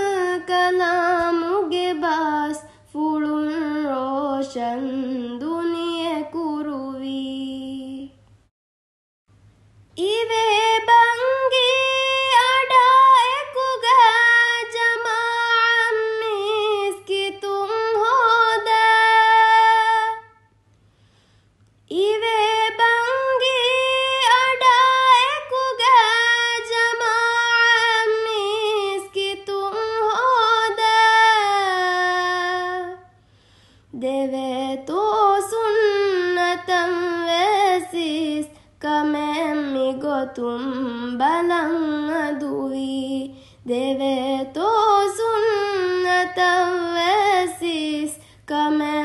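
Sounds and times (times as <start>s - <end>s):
woman singing unaccompanied: 0.0s - 8.2s, 10.0s - 20.5s, 21.9s - 33.2s, 33.9s - 49.0s
faint low hum: 0.0s - 8.5s, 9.3s - 49.0s.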